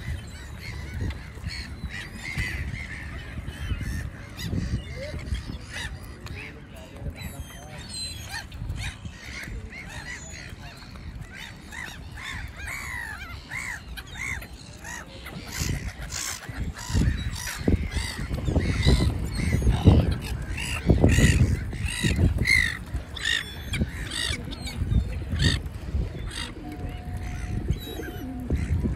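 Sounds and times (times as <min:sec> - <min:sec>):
gulls calling: 0:00.0 - 0:28.9.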